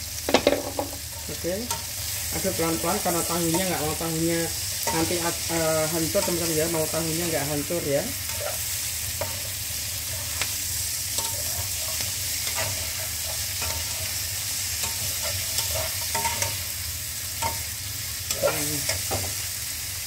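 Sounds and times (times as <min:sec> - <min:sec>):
vegetables sizzling in a frying pan: 0:00.0 - 0:20.0
spatula scraping a pan: 0:04.6 - 0:16.8.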